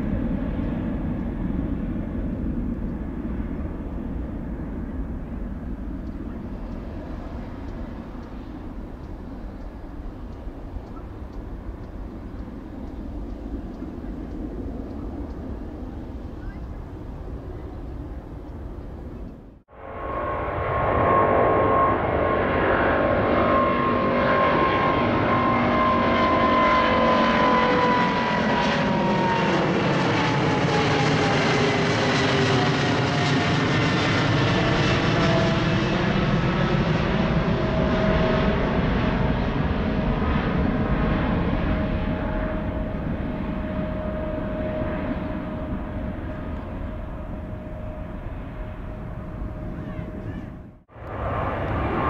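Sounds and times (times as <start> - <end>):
jet airliner passing overhead: 0.0 - 52.0.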